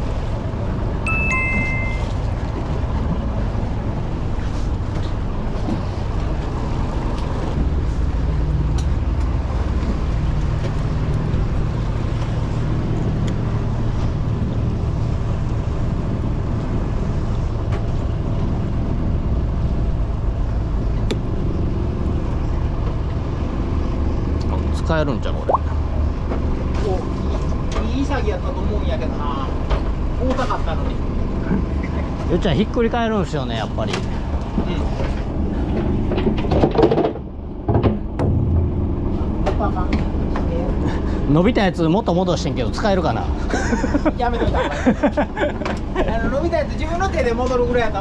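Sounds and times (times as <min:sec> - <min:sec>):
boat engine droning: 0:00.0 - 0:36.5, 0:37.2 - 0:48.0.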